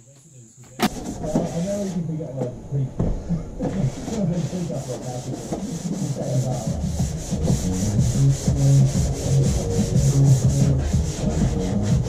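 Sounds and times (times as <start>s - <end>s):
sandpaper rubbing on metal: 0.9s - 2.0s, 3.8s - 12.0s.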